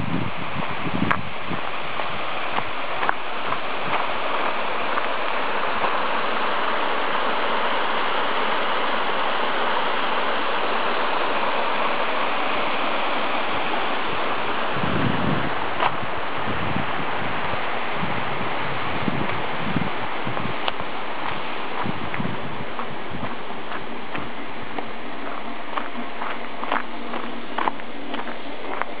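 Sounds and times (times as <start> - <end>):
stream rushing over rocks: 0.0 - 29.0
footsteps on gravel: 0.6 - 6.5, 15.8 - 16.1, 19.2 - 29.0.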